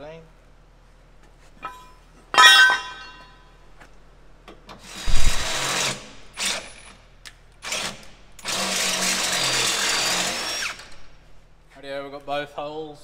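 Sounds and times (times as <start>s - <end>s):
ringing metal clink: 1.6s - 3.5s
cordless drill drilling steel: 4.9s - 6.8s, 7.6s - 11.0s.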